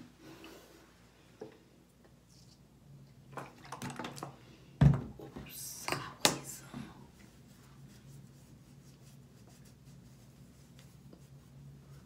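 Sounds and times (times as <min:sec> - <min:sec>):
cotton ball rubbing on skin: 0:07.3 - 0:12.0.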